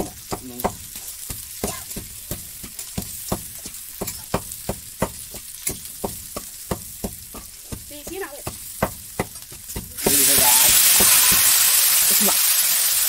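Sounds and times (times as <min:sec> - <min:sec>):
spatula scraping a pan: 0:00.0 - 0:11.6
food sizzling in a pan: 0:00.0 - 0:13.0.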